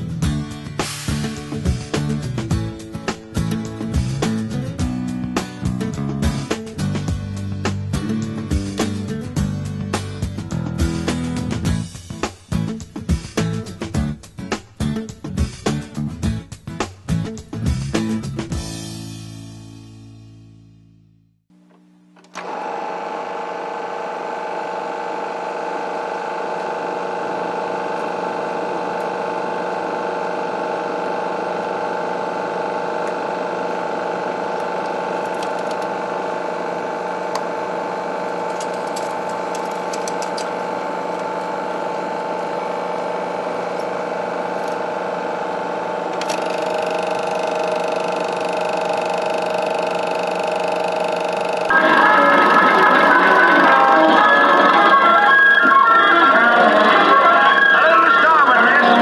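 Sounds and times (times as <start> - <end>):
film projector whirring: 22.2 - 59.0.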